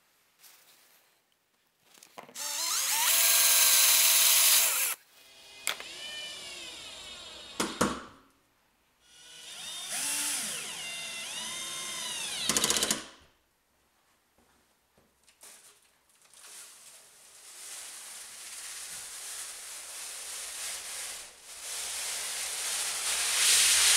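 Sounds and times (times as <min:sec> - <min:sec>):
drill bit drilling metal: 0:02.4 - 0:05.0, 0:05.6 - 0:07.6, 0:09.2 - 0:13.0
cordless drill whining: 0:02.4 - 0:07.8, 0:09.1 - 0:13.0.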